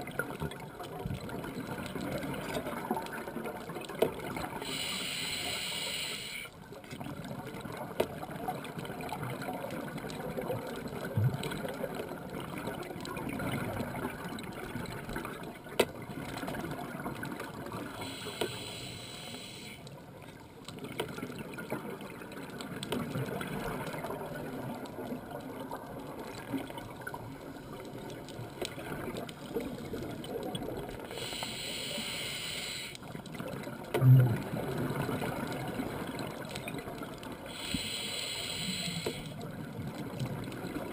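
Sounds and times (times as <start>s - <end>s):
underwater bubbles gurgling: 0.0s - 40.9s
regulator hiss of inhaled breath: 4.6s - 6.5s, 18.0s - 19.8s, 31.1s - 33.0s, 37.5s - 39.4s.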